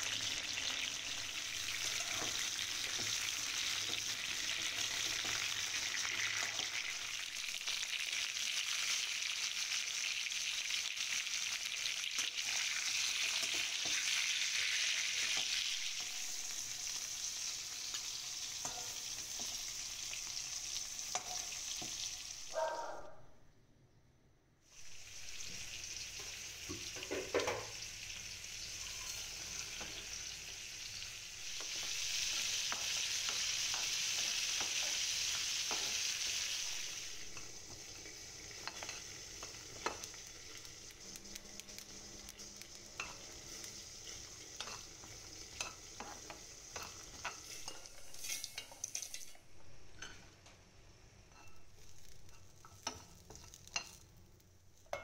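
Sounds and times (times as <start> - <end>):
oil sizzling in a frying pan: 0.0 - 22.6, 24.7 - 55.0
metal spoon scraping a pan: 1.4 - 5.6, 12.2 - 22.1, 38.4 - 40.6, 41.2 - 50.3, 51.3 - 54.1.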